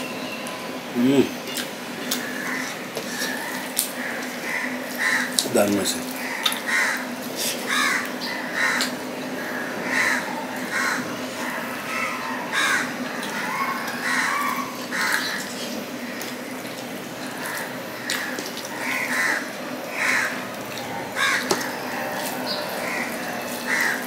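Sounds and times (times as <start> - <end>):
food squishing mixed by hand: 13.0 - 24.0.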